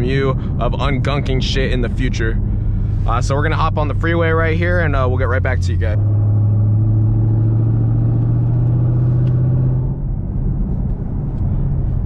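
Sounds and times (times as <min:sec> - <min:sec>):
car engine droning under load: 0:00.0 - 0:12.0.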